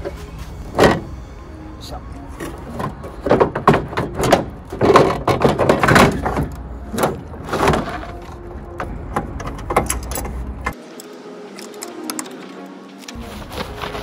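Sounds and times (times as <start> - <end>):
plastic bumper panel knocking and rattling: 2.7 - 8.2.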